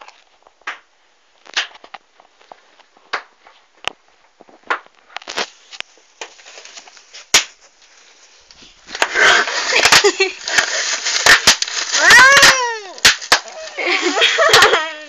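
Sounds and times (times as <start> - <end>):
bubble wrap popping: 6.2 - 15.0.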